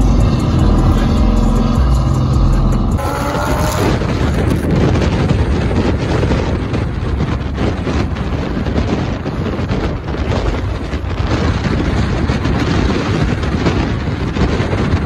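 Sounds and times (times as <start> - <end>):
rising engine note: 0.0 - 5.9
car rumbling on the move: 0.0 - 15.0
wind buffeting microphone: 0.0 - 15.0.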